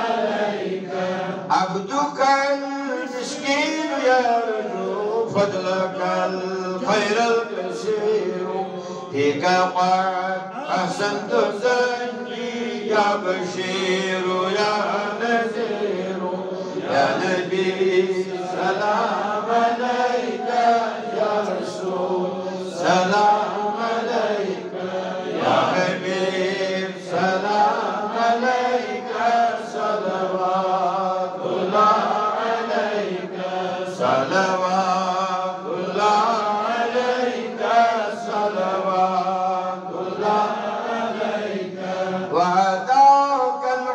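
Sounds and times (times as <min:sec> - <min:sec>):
man chanting: 0:01.5 - 0:19.2, 0:42.3 - 0:43.9.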